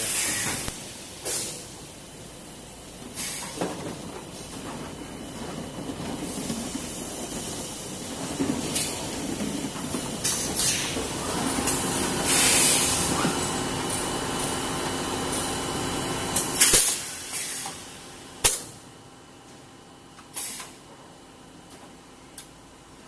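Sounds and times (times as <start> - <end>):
compressed air hissing blasts: 0.0 - 2.2, 3.2 - 3.6, 10.2 - 15.6, 16.3 - 18.6
steady machine hum: 0.0 - 20.2.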